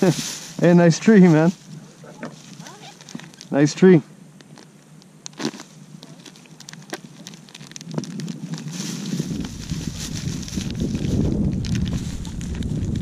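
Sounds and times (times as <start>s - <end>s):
plastic bag crinkling: 0.0s - 13.0s
wind buffeting microphone: 7.6s - 13.0s.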